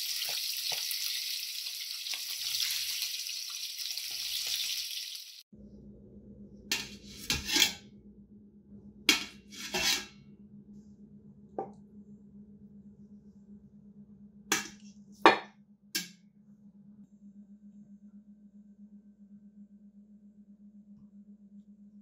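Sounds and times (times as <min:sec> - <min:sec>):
meat sizzling in oil: 0:00.0 - 0:05.4
faint low hum: 0:05.6 - 0:09.6, 0:10.2 - 0:22.0.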